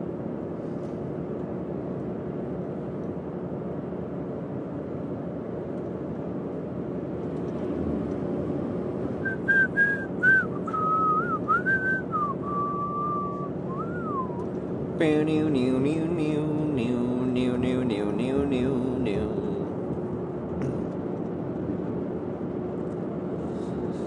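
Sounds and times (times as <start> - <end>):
road noise inside moving car: 0.0 - 24.0
person whistling a tune: 9.2 - 14.4
person speaking: 15.0 - 19.7.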